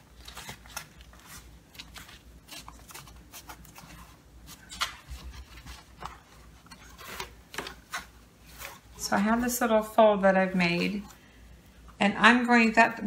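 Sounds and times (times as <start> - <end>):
cardboard scraping and rustling: 0.1 - 9.5.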